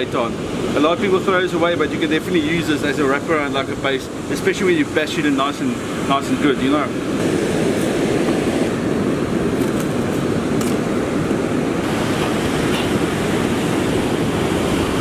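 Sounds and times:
wind noise on microphone: 0:06.8 - 0:15.0.

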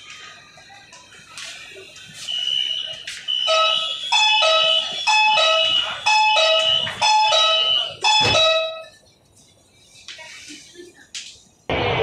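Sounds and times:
door warning alarm beeping: 0:02.2 - 0:09.0.

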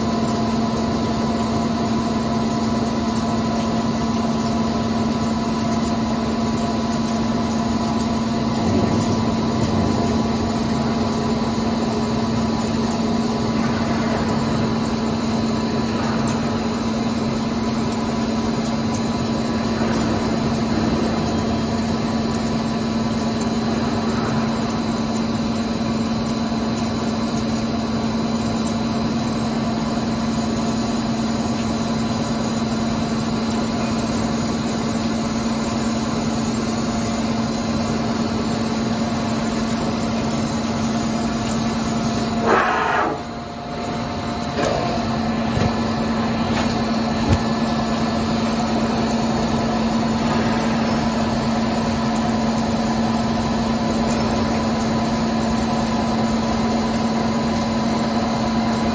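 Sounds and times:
lathe machine hum: 0:08.2 - 0:27.3
short harsh machining burst: 0:42.4 - 0:43.3.

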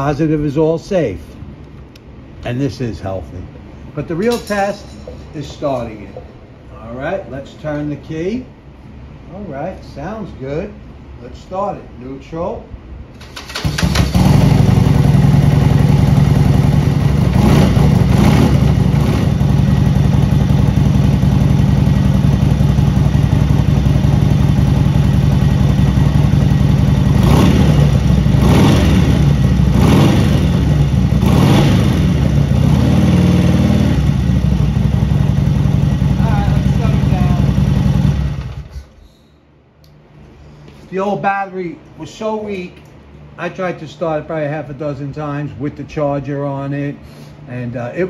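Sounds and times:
engine throttle blips: 0:13.2 - 0:38.8
motorcycle engine idling: 0:13.8 - 0:38.7.

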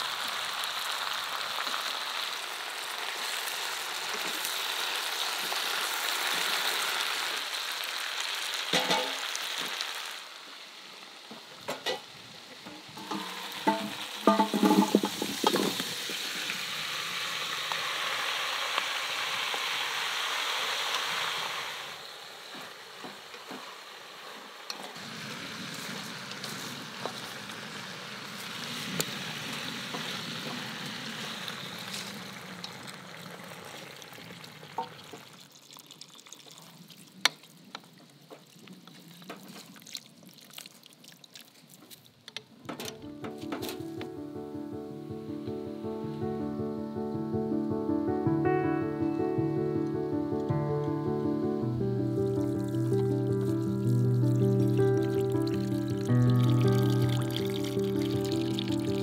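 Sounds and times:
meat and vegetables sizzling: 0:00.0 - 0:37.4, 0:49.3 - 0:59.0
enamel pots clinking: 0:13.0 - 0:15.9.

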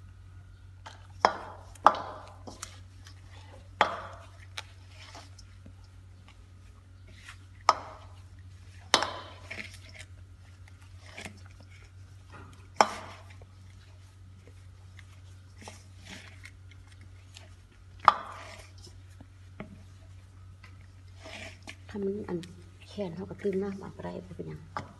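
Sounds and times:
dough slapping against bowl: 0:01.2 - 0:02.8, 0:07.2 - 0:09.7, 0:12.5 - 0:13.5, 0:18.0 - 0:19.8.

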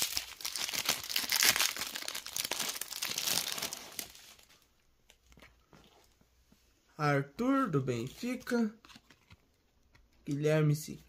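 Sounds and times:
foil pack crinkling: 0:00.0 - 0:04.6
cards being handled: 0:08.0 - 0:10.4.

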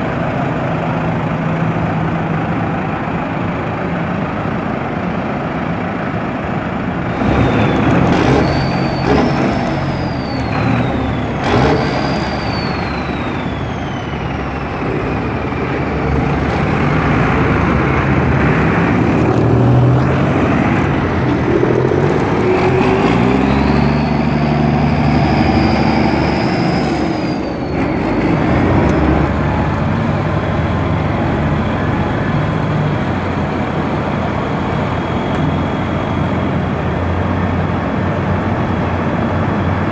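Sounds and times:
diesel tractor engines running: 0:00.0 - 0:39.9
engine revving: 0:07.0 - 0:37.8
high whistle: 0:07.1 - 0:14.6, 0:22.4 - 0:28.4, 0:34.4 - 0:36.8.

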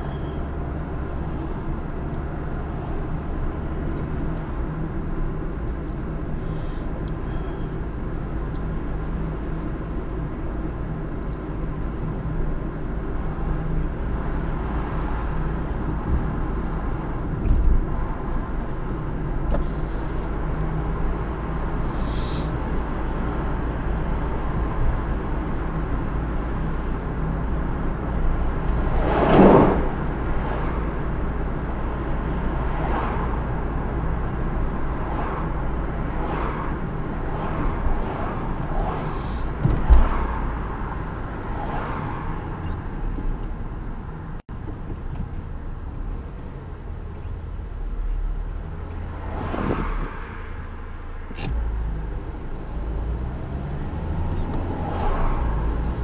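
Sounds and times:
car road and engine noise: 0:00.0 - 0:56.0
vehicles swooshing past: 0:28.6 - 0:31.3, 0:32.2 - 0:42.7, 0:49.0 - 0:56.0.

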